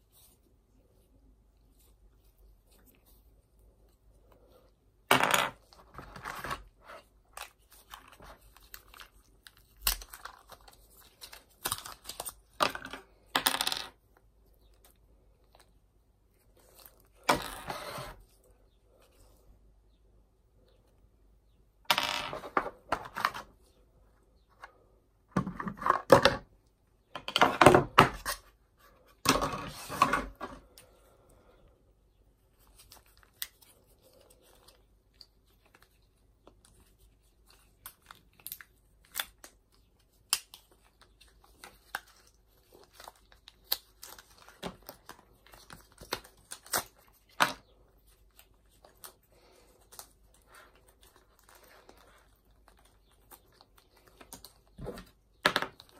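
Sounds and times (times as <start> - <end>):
plastic packaging crinkling and tearing: 6.0 - 12.5, 32.5 - 55.9.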